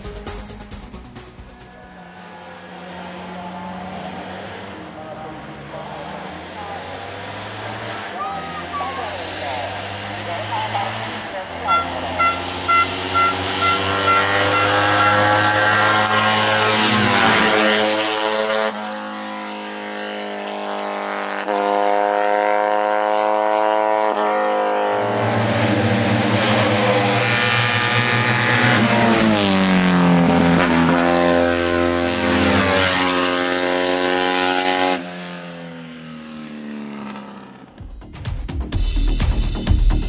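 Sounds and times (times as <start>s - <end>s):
racing car engine revving hard: 1.8s - 37.8s.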